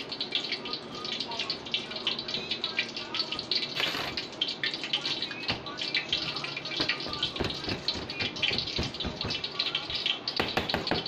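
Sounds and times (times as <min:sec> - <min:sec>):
knocks on metal table: 0:10.4 - 0:11.0.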